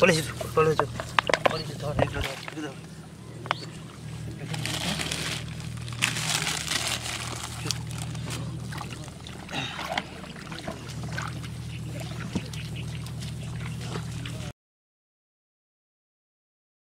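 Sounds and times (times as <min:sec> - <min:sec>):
water sloshing in plastic tub: 0:00.0 - 0:02.8, 0:04.4 - 0:14.5
low hum: 0:00.0 - 0:14.5.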